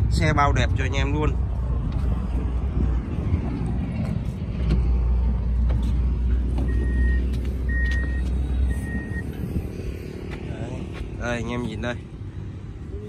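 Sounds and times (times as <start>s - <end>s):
low rumble: 0.0s - 13.0s
car electronic beeps: 6.6s - 9.4s.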